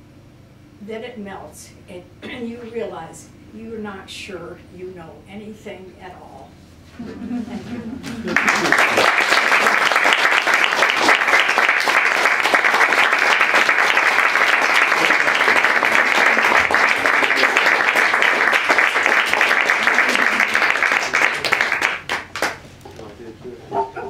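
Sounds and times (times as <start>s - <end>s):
crowd clapping: 8.0s - 23.1s.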